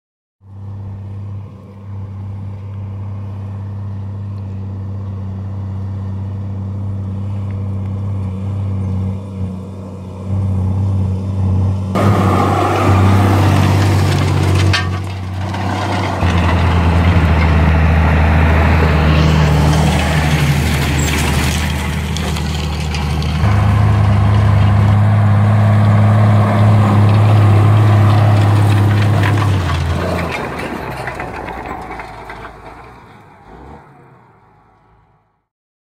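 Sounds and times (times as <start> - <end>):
tractor diesel engine running: 0.5 - 34.9
harrow discs rushing through soil: 11.2 - 34.2.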